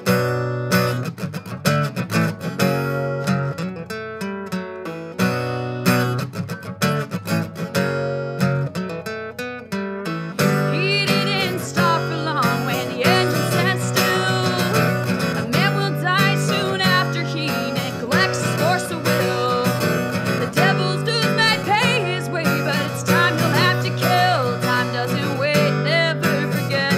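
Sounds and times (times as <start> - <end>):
acoustic guitar strumming chords: 0.0 - 26.9
person singing: 10.4 - 26.9.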